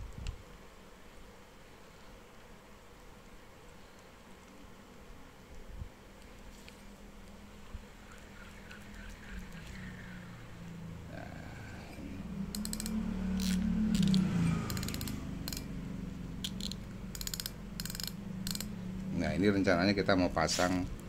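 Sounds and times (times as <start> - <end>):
fishing reel whirring: 12.3 - 15.8, 16.4 - 18.8
rapid clicking of reel: 12.5 - 15.7, 16.4 - 18.8.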